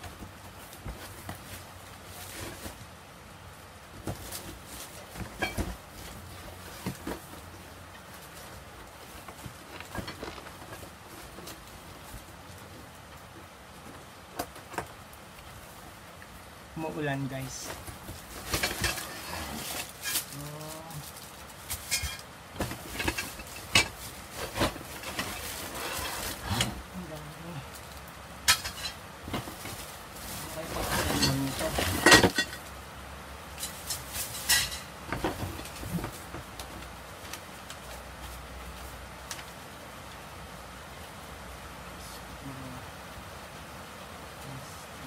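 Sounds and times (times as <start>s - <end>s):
steady hiss: 0.0s - 45.0s
cardboard box rustling: 3.9s - 14.6s, 22.5s - 26.9s.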